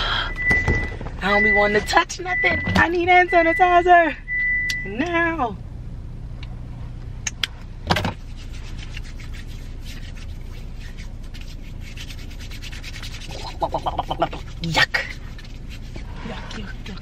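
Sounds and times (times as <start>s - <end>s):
hands rubbing sanitizer gel: 8.2s - 17.0s.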